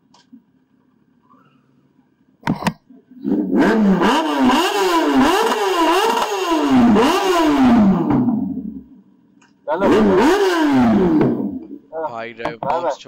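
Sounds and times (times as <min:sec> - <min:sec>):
motorcycle engine revving: 0:02.5 - 0:13.0
engine pops: 0:08.0 - 0:08.5, 0:09.4 - 0:13.0.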